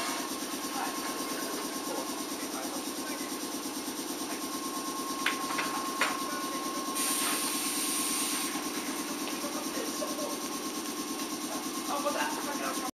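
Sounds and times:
pneumatic door air hiss: 6.9 - 8.6.

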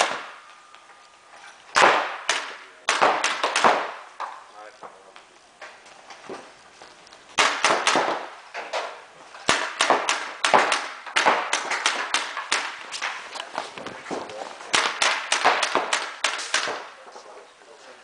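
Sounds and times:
paintball markers firing: 1.8 - 4.4, 7.4 - 8.4, 9.4 - 13.5, 14.7 - 17.0.

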